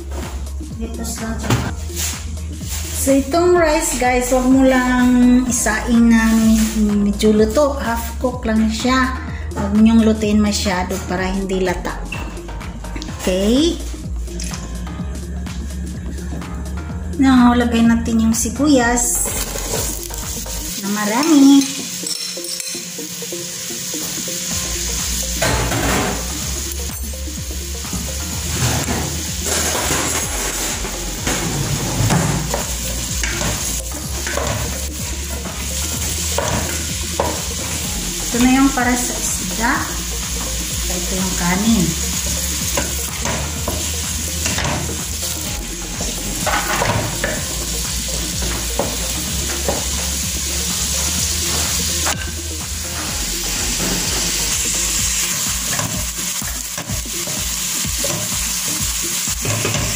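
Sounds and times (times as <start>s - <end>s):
onions sizzling in hot oil: 1.8s - 4.0s, 4.7s - 7.0s, 19.0s - 59.9s.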